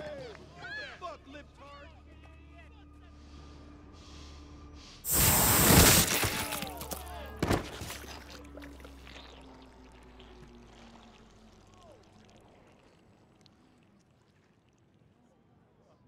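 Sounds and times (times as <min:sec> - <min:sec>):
searing laser blast: 0:05.1 - 0:06.5
wet splatter: 0:05.1 - 0:06.8.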